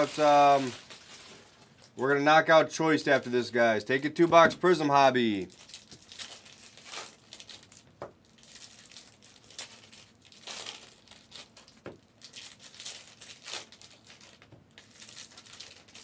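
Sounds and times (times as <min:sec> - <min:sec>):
card pack wrappers crinkling: 0:00.0 - 0:02.1, 0:03.0 - 0:16.0.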